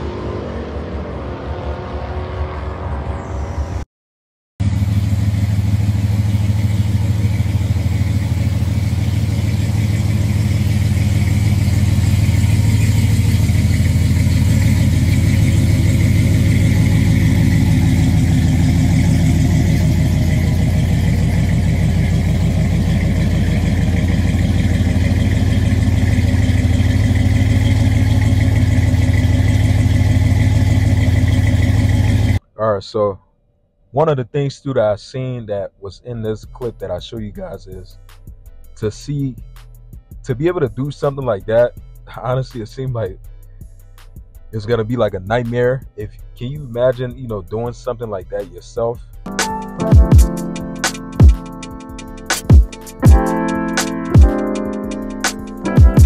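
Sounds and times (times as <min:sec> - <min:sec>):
truck engine idling: 0:04.6 - 0:32.4, 0:49.3 - 0:56.0.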